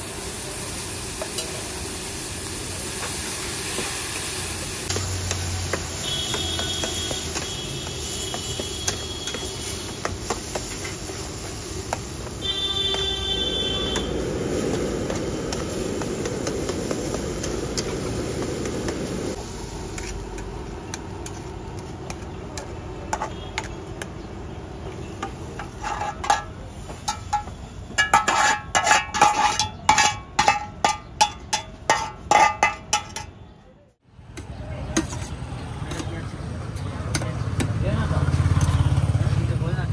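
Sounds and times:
gas burner rushing: 0.0 - 23.7
metal spatula scraping iron pan: 8.1 - 11.3, 25.2 - 33.4.

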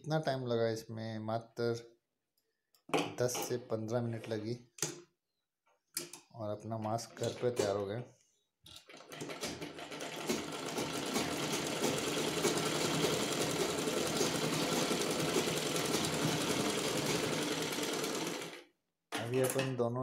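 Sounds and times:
sewing machine stitching: 8.8 - 18.6.

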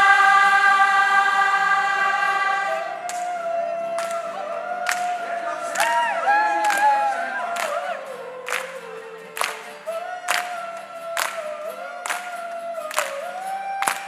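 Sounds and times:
crowd choir singing: 0.0 - 14.0
hands clapping on the beat: 3.0 - 14.0.

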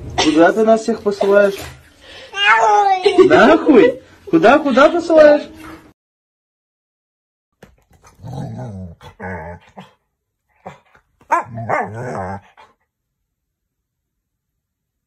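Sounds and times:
large dog growling barks: 8.0 - 12.8.

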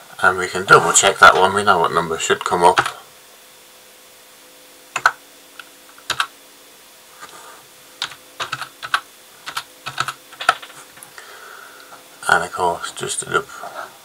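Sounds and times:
keyboard keystrokes: 5.0 - 5.2, 6.1 - 6.3, 8.0 - 10.8.

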